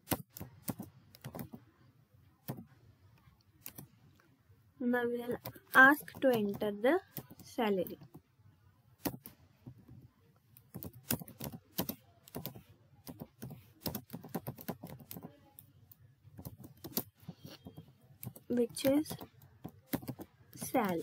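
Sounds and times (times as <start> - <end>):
typing on computer keyboard: 0.0 - 1.7, 5.2 - 8.2, 10.6 - 21.0.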